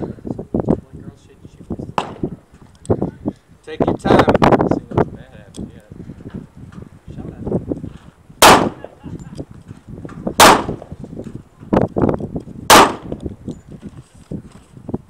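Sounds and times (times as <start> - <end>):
dull bang: 2.0 - 2.4
pistol shots: 2.0 - 2.4, 8.4 - 9.0, 10.4 - 11.0, 12.7 - 13.2.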